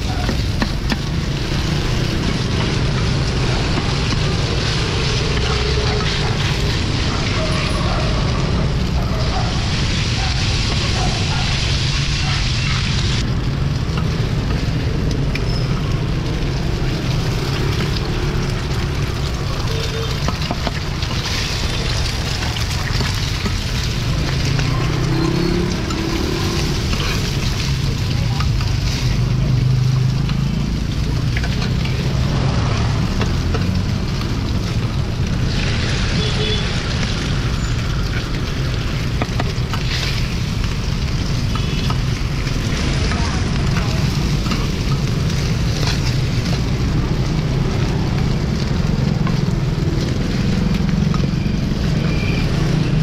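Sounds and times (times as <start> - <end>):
food sizzling on a griddle: 0.0 - 53.0
street traffic rumble: 0.0 - 53.0
metal spatula scraping a pan: 19.8 - 28.0.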